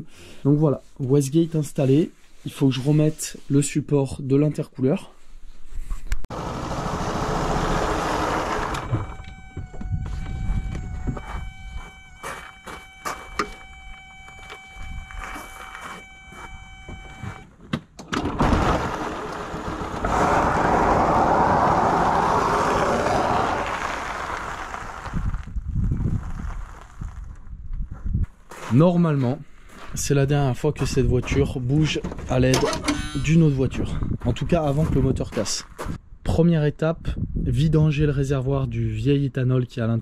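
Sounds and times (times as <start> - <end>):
steady buzzing tone: 7.4 - 17.4
tyres crunching over gravel: 18.6 - 27.4.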